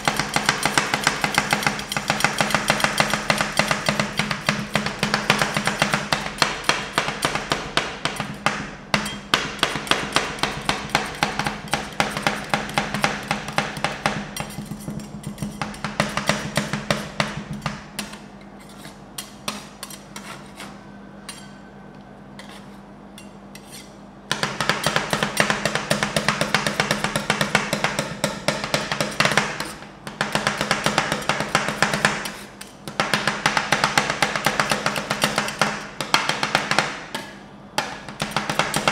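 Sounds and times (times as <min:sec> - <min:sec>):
metal spatulas tapping on pan: 0:00.0 - 0:18.1
spatulas scraping: 0:17.5 - 0:24.0.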